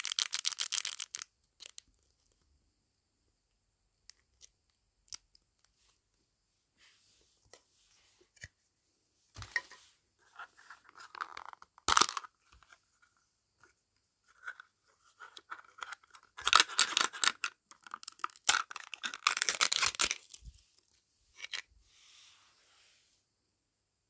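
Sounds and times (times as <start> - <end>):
thin plastic crinkling and tearing: 0.0 - 2.4, 15.3 - 20.8.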